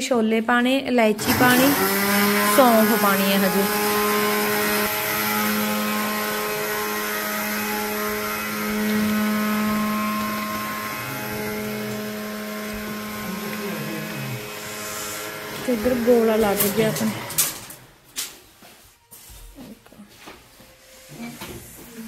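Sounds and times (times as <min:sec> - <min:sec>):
mixer grinder motor humming: 0:01.1 - 0:18.0.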